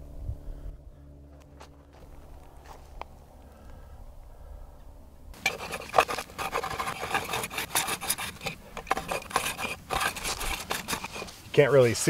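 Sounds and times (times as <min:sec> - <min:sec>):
hand plane scraping wood: 0:05.4 - 0:11.4.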